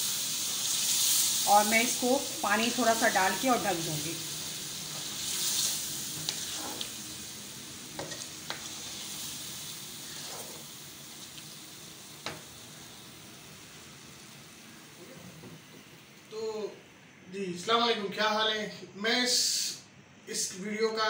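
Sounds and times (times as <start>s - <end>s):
meat sizzling in hot oil: 0.0s - 16.3s.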